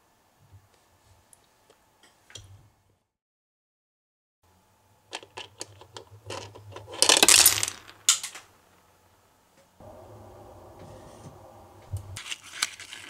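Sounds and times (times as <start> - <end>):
small hard pieces clattering: 5.2 - 8.5, 12.2 - 13.0.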